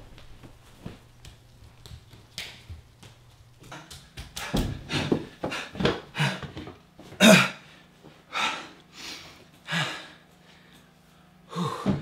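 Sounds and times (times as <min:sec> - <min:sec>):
man clearing his throat: 0:07.1 - 0:07.6
man breathing out noisily: 0:11.5 - 0:12.0.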